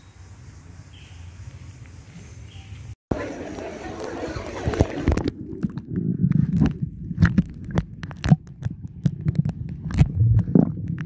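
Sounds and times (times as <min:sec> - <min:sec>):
low rumble: 0:05.1 - 0:11.0
thumping and rubbing on microphone: 0:06.0 - 0:11.0.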